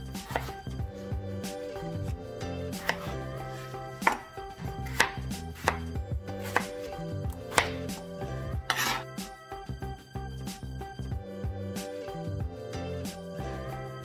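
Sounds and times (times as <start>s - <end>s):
background music: 0.0s - 14.0s
knife chopping on cutting board: 0.1s - 0.6s, 2.7s - 9.1s
knife scraping board: 0.2s - 0.6s, 2.8s - 5.8s, 6.4s - 7.8s, 8.5s - 9.2s.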